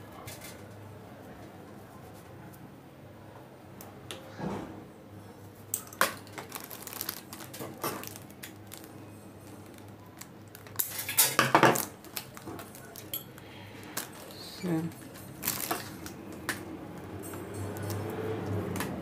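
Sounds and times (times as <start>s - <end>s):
sequined fabric crinkling: 6.2s - 11.1s, 11.8s - 16.1s.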